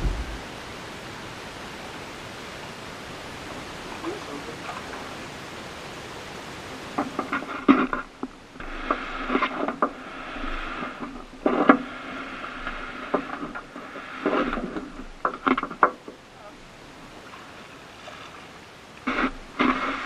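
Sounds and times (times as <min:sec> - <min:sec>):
small knocks: 0:12.7 - 0:16.2.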